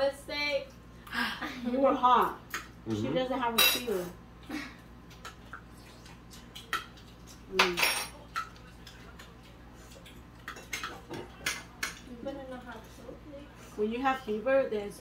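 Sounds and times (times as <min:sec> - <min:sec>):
cutlery clinking on plates: 0:07.6 - 0:12.1.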